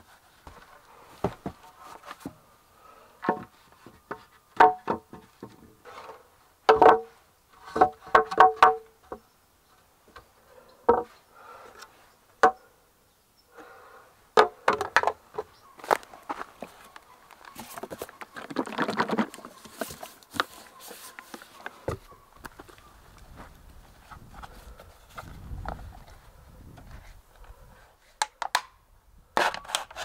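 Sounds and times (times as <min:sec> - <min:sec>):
boards knocked onto joists: 0:04.6 - 0:05.6.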